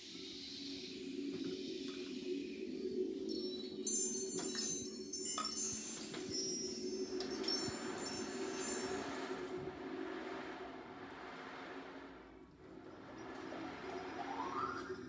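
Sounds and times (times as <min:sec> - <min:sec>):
wind chimes ringing: 0:03.3 - 0:09.5.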